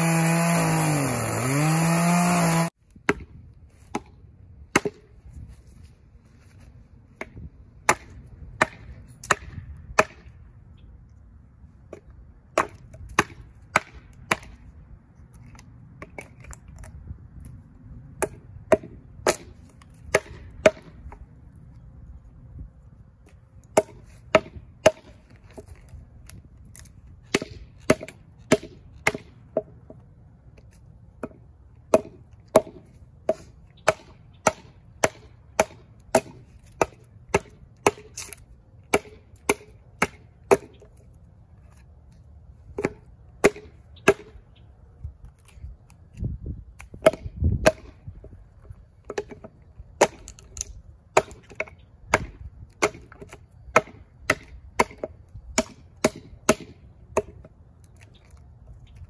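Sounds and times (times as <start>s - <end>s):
hatchet chopping wood: 0.0s - 5.1s, 7.2s - 10.4s, 11.9s - 14.6s, 18.2s - 21.2s, 23.2s - 30.0s, 31.2s - 41.0s, 42.7s - 44.4s, 46.2s - 48.1s, 49.0s - 57.6s.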